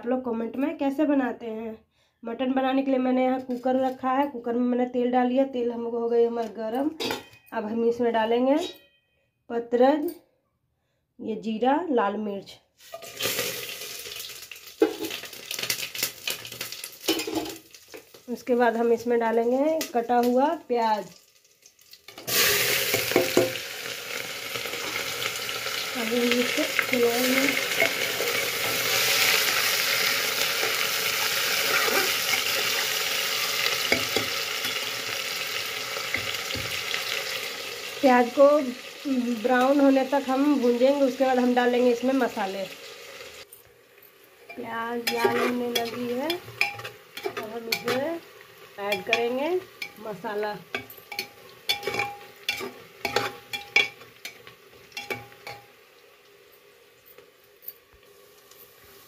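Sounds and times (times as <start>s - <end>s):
onions sizzling in oil: 12.8s - 59.0s
metal spoon scraping a pot: 27.4s - 30.0s, 30.6s - 33.0s, 44.5s - 48.2s, 50.7s - 55.7s
metal ladle knocking pot: 44.5s - 48.1s, 50.8s - 54.0s.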